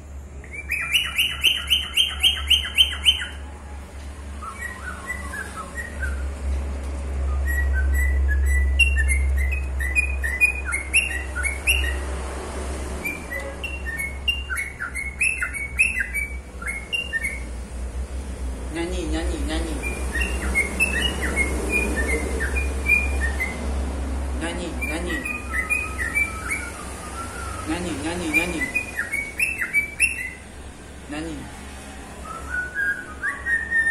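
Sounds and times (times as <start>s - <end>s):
cockatiel whistling: 0.4s - 3.4s, 4.4s - 6.3s, 7.3s - 12.0s, 13.0s - 17.5s, 19.8s - 23.6s, 24.8s - 30.4s, 32.2s - 33.9s.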